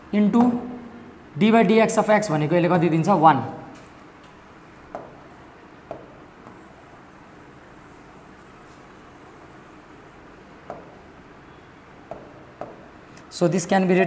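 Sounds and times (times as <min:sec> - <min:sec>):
room hiss: 0:04.5 - 0:14.0
finger tapping touchscreen glass: 0:10.7 - 0:11.0.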